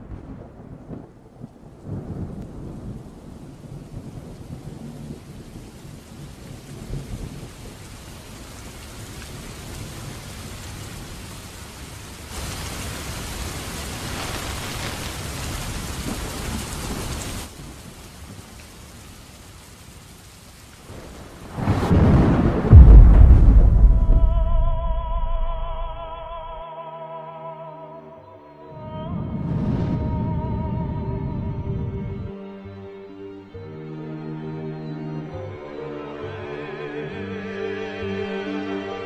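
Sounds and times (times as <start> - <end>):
low rumble of thunder: 0.0 - 8.0, 20.9 - 26.5
steady rain: 0.0 - 26.6.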